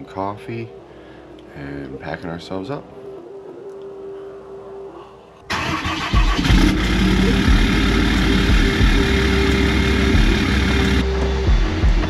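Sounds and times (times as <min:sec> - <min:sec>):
diesel engine starting and idling: 0:05.5 - 0:11.1.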